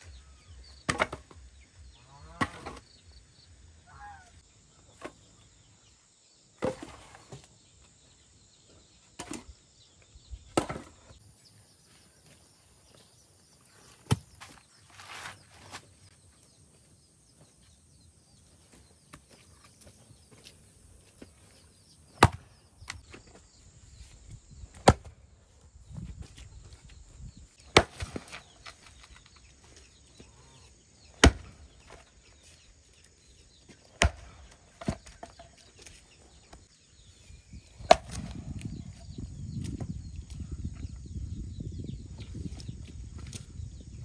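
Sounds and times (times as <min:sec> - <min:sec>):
chopping blows into wood: 0:22.2 - 0:22.4, 0:24.7 - 0:25.1, 0:31.2 - 0:32.0, 0:37.8 - 0:38.7.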